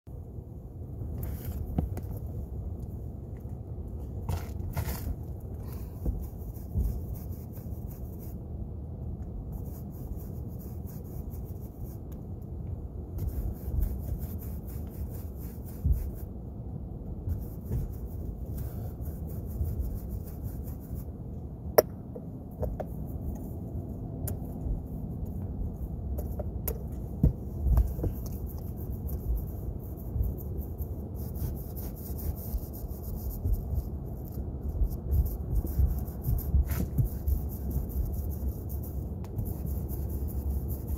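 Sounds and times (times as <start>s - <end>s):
steady low rumble: 0.1s - 40.9s
paintbrush rubbing on wooden shingles: 4.1s - 8.5s, 9.4s - 12.2s, 13.2s - 16.4s, 17.2s - 21.3s, 22.7s - 40.9s.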